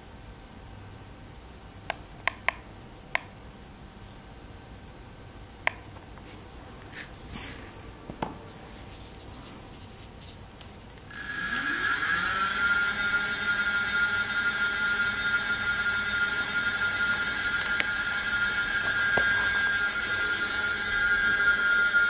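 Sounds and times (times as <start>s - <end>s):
electric motor whine: 11.1s - 22.0s.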